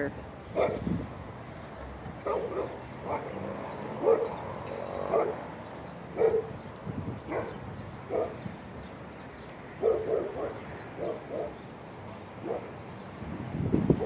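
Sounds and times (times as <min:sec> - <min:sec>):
dog barking: 0:00.6 - 0:00.8, 0:02.2 - 0:03.4, 0:04.0 - 0:04.4, 0:05.1 - 0:05.4, 0:06.2 - 0:06.5, 0:07.3 - 0:08.4, 0:09.8 - 0:11.6, 0:12.4 - 0:12.7.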